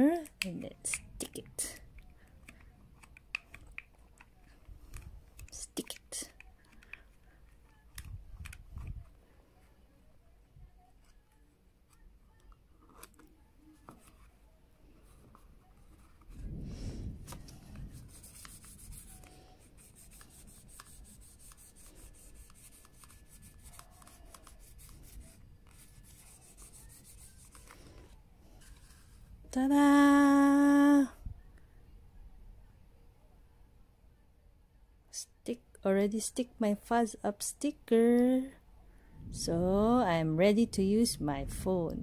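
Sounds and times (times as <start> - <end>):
paper rubbing on phone: 17.2 - 29.3.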